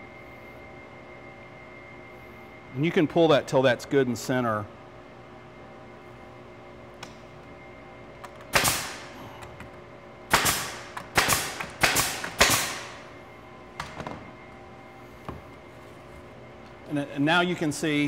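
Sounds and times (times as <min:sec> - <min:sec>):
nail gun shots: 0:08.5 - 0:09.1, 0:10.3 - 0:13.0.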